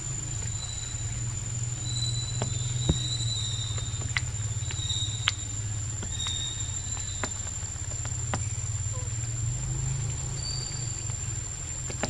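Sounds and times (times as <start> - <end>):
high chirps: 0.0 - 9.1
steady low rumble: 0.0 - 12.0
thin high whine: 0.0 - 12.0.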